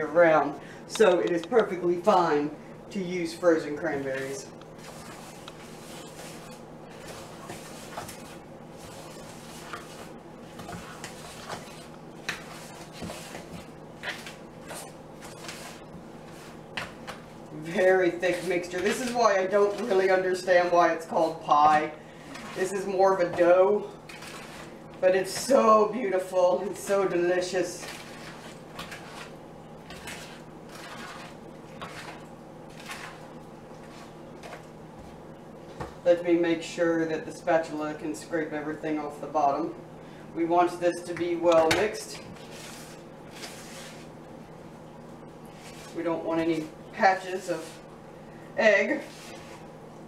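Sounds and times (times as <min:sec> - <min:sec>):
faint steady hum: 0:00.0 - 0:50.0
spatula scraping a mixing bowl: 0:03.7 - 0:34.6, 0:41.5 - 0:44.2, 0:45.5 - 0:47.9, 0:48.8 - 0:49.7.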